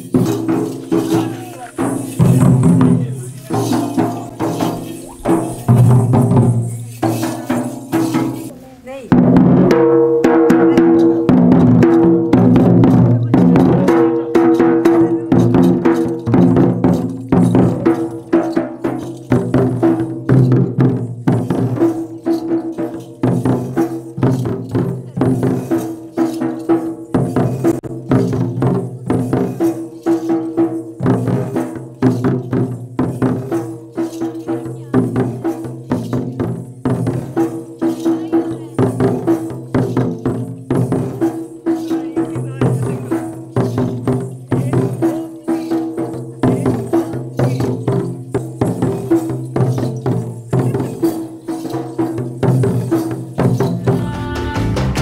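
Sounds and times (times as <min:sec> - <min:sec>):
held melody: 0:00.0 - 0:11.4, 0:49.6 - 0:55.0
barrel drums beaten: 0:00.0 - 0:55.0.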